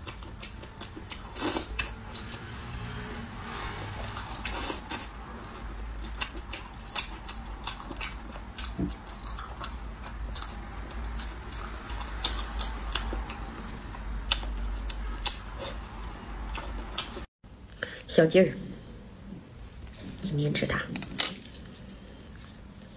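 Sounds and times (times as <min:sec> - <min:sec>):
wet chewing and lip smacking: 0:00.0 - 0:02.9, 0:04.0 - 0:17.3.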